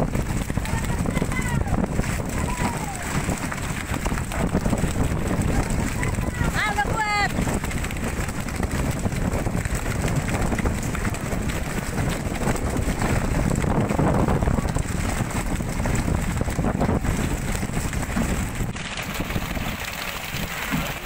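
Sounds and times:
boat running noise: 0.0s - 21.0s
water along hull: 0.0s - 21.0s
wind buffeting microphone: 0.0s - 21.0s.

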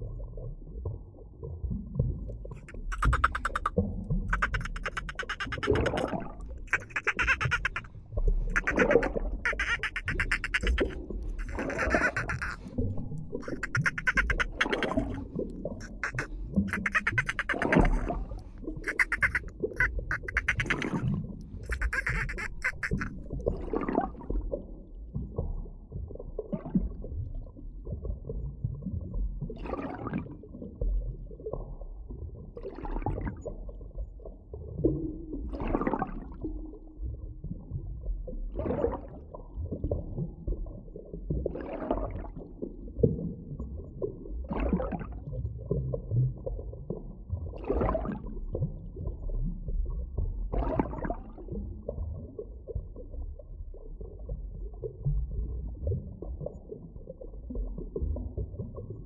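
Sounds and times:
underwater low rumble: 0.0s - 2.6s, 23.1s - 59.0s.

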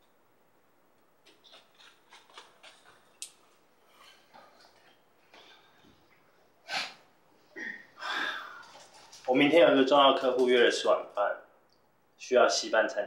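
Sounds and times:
huff of breath: 6.6s - 8.8s.

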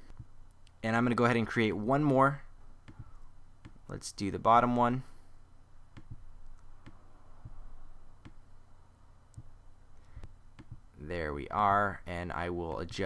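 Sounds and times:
faint low hum: 0.0s - 13.0s
computer mouse clicking: 2.8s - 3.8s, 5.9s - 7.0s, 9.3s - 10.8s.

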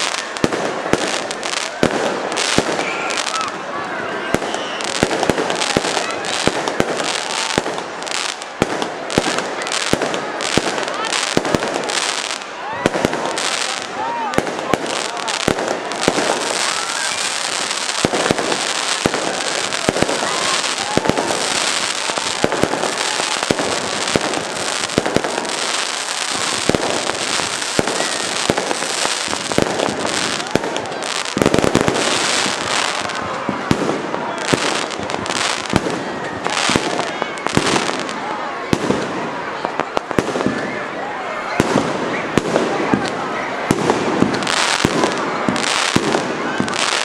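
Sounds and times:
firework bangs: 0.0s - 40.8s, 41.5s - 47.0s
firework whistle: 4.3s - 5.3s, 16.0s - 29.7s
firework crackling hiss: 4.3s - 39.1s.

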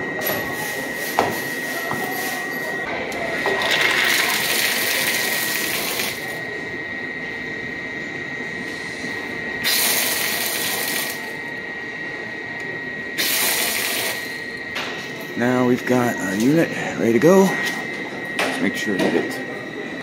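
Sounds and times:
water surging through valve: 3.5s - 6.3s, 9.6s - 11.2s, 13.2s - 14.2s
thin steady whistle: 15.4s - 20.0s.

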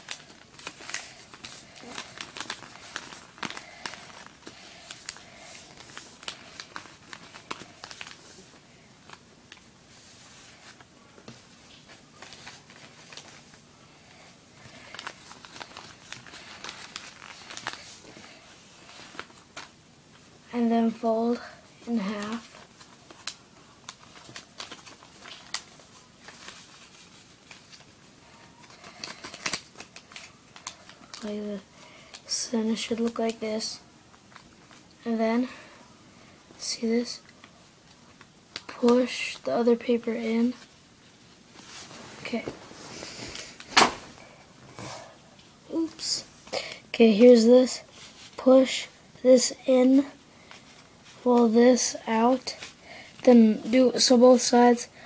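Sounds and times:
paper being folded and creased: 0.0s - 9.3s, 11.6s - 13.6s, 14.6s - 19.7s, 21.8s - 31.3s.

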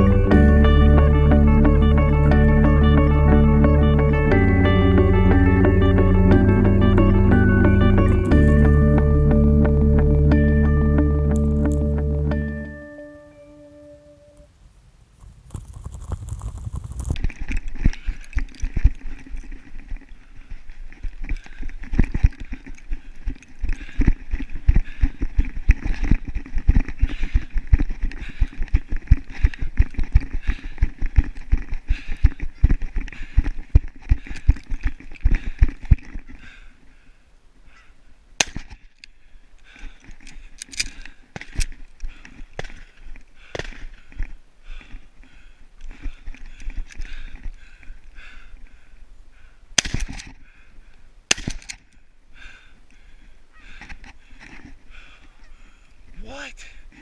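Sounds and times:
sharp cracks: 15.1s - 19.2s, 38.4s - 39.1s, 42.5s - 44.3s, 49.8s - 50.4s, 51.3s - 52.0s.

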